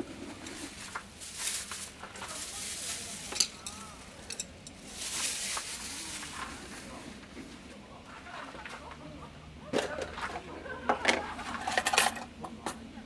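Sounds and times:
camp gear rustling and scraping: 0:00.0 - 0:08.8.

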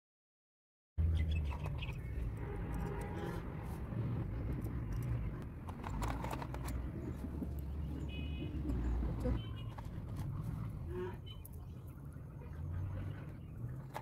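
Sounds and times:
steady low outdoor rumble: 0:01.0 - 0:14.0
earrings clicking and clinking: 0:04.4 - 0:10.4.

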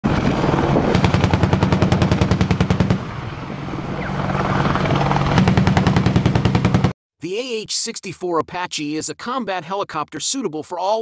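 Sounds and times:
helicopter rotor thudding: 0:00.1 - 0:07.0.

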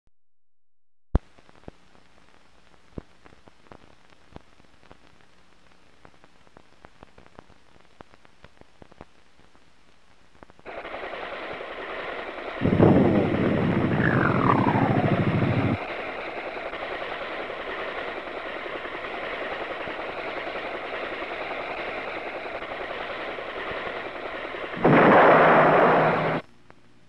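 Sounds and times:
missile firing: 0:10.7 - 0:16.1, 0:24.7 - 0:26.4
helicopter rushing: 0:10.7 - 0:26.4
whine falling in pitch: 0:12.6 - 0:16.0, 0:24.8 - 0:26.4.

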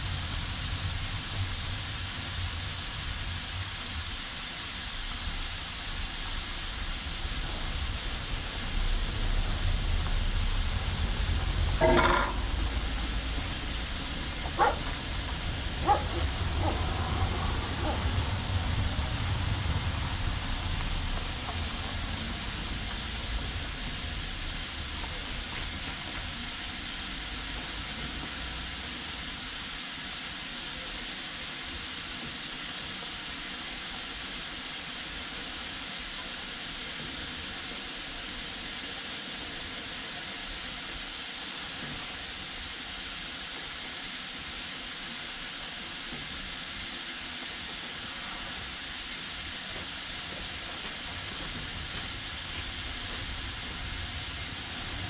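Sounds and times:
slow train rumbling: 0:00.0 - 0:55.0
steam locomotive hissing: 0:00.0 - 0:55.0.

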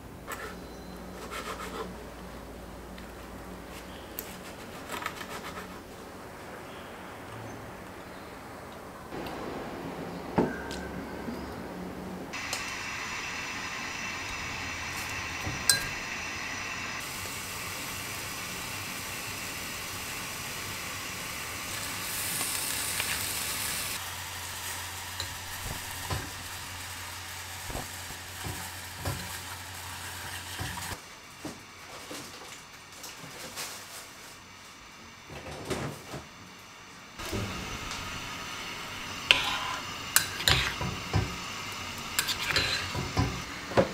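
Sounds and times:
food frying sizzle: 0:12.3 - 0:31.0, 0:37.2 - 0:43.8
mug and cutlery clinking: 0:39.3 - 0:41.2, 0:42.2 - 0:43.4.

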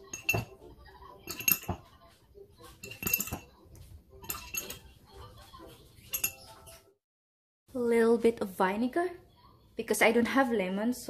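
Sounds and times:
metal spoon clinking on ceramic: 0:00.0 - 0:02.0, 0:02.7 - 0:03.6, 0:04.2 - 0:05.0, 0:06.0 - 0:06.6.

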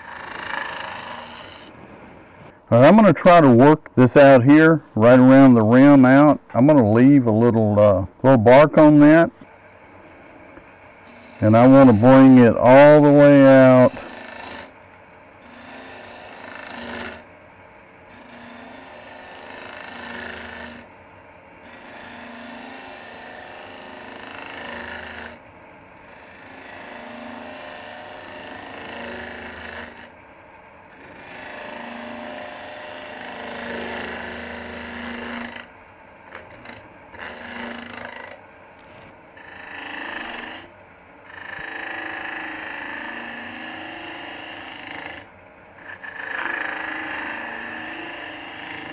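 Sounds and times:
tool scraping wood: 0:00.0 - 0:02.6, 0:08.5 - 0:14.8, 0:15.4 - 0:17.2, 0:18.1 - 0:20.9, 0:21.6 - 0:25.4, 0:26.0 - 0:30.1, 0:30.9 - 0:35.7, 0:36.3 - 0:40.7, 0:41.3 - 0:48.9
lathe humming: 0:00.0 - 0:48.9.

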